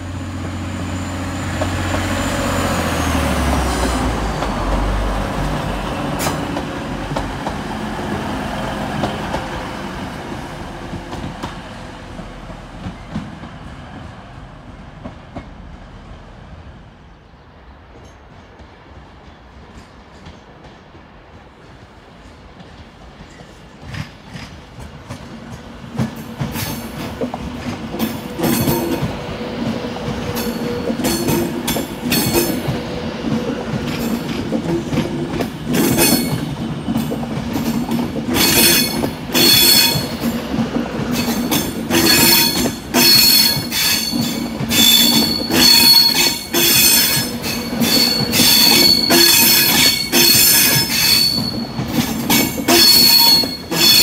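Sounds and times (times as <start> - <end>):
diesel train engine hum: 0.0 - 54.0
train wheels squealing: 0.4 - 7.2, 22.7 - 24.6, 28.0 - 54.0
train wheels clacking: 0.4 - 14.1, 17.9 - 54.0.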